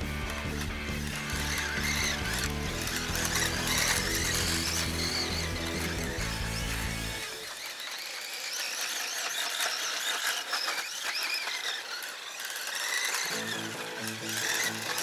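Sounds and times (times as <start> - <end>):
background music: 0.0 - 7.2, 13.3 - 15.0
rc car motor whining: 0.0 - 15.0.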